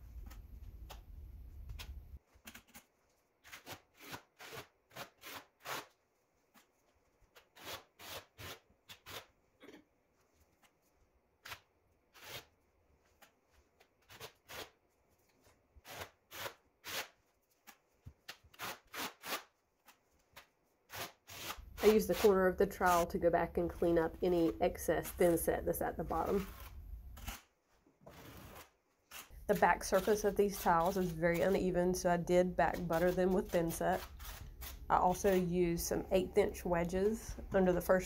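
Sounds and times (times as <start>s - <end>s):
trowel scraping thinset on drywall: 26.3s - 31.6s, 32.7s - 35.5s.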